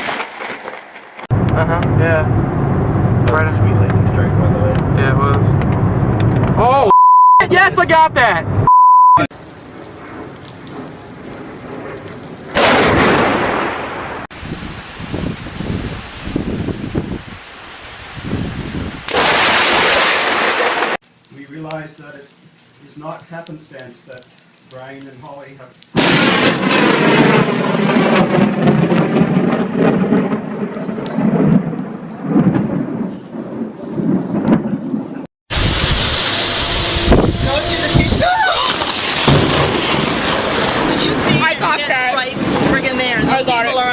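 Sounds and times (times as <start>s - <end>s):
loud thunderclap: 1.3s - 6.6s, 9.6s - 17.3s, 18.2s - 21.0s, 26.0s - 43.9s
brief beep: 6.9s - 7.5s, 8.7s - 9.3s
steady rain: 9.3s - 43.9s.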